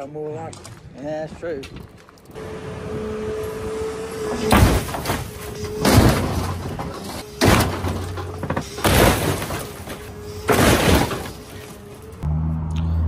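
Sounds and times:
metal and glass crunching: 4.4s - 12.2s.

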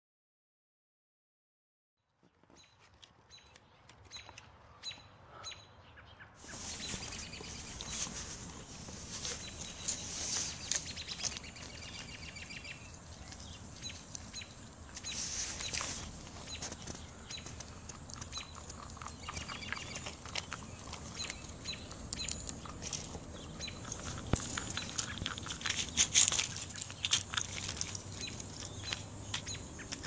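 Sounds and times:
small birds chirping: 2.2s - 30.0s
chipmunk cracking peanut shells: 2.8s - 4.6s, 15.7s - 30.0s.

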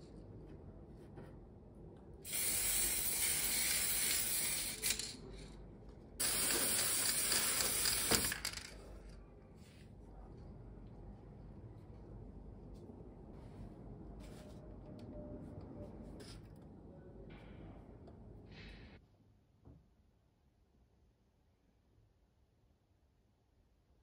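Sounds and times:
spray paint can hissing: 2.3s - 5.2s, 6.2s - 8.7s
spray can click: 6.3s - 8.7s.

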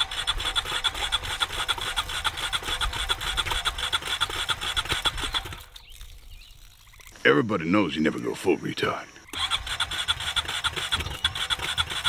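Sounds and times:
engine cranking on starter: 0.0s - 5.6s, 9.3s - 12.0s.

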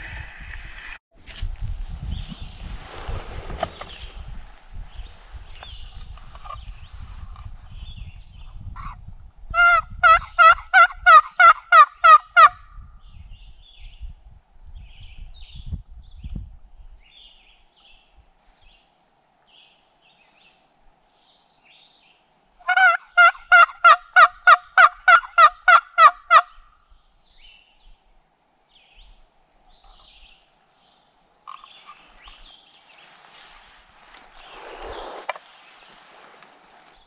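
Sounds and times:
turkey call hen yelps: 9.6s - 12.6s, 22.7s - 26.5s
songbird chirps: 14.9s - 22.4s, 26.5s - 37.0s
rustling: 31.5s - 37.0s.

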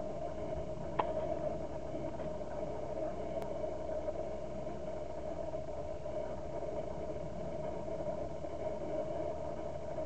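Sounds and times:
distant propeller plane droning: 0.0s - 10.0s
faint clicks: 3.4s - 3.6s.

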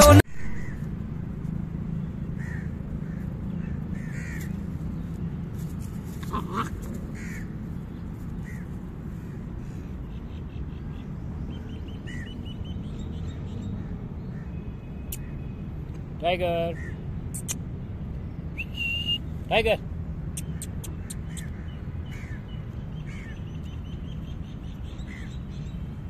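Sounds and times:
low outdoor rumble: 0.0s - 14.6s.

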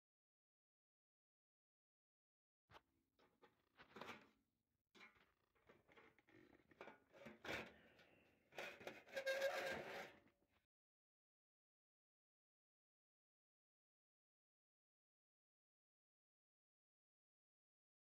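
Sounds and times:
clicks and scrapes on metal case: 2.8s - 4.4s, 5.0s - 10.3s.

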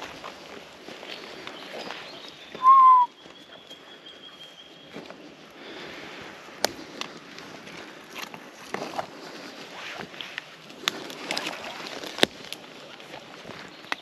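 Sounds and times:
whistled note: 2.6s - 3.2s
soft rustling: 4.9s - 14.0s.

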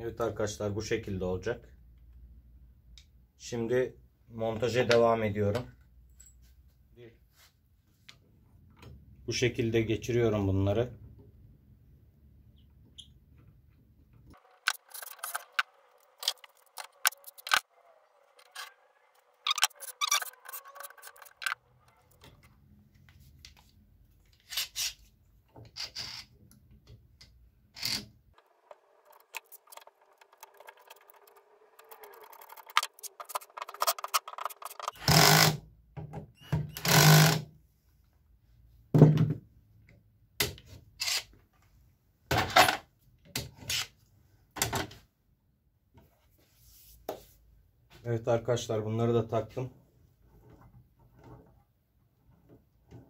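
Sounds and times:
loud scraping bursts: 14.4s - 17.7s, 18.3s - 21.6s
metal and wooden parts clicking: 14.4s - 17.7s, 18.3s - 22.4s, 26.9s - 35.4s.

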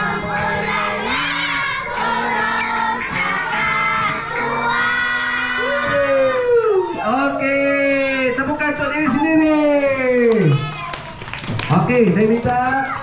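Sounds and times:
children singing in unison: 0.0s - 6.0s
children shouting: 0.0s - 11.2s, 12.5s - 13.0s.

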